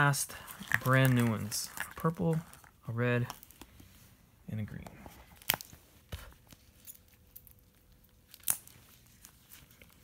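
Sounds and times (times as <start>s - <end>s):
plastic wrap crinkling: 0.0s - 3.8s.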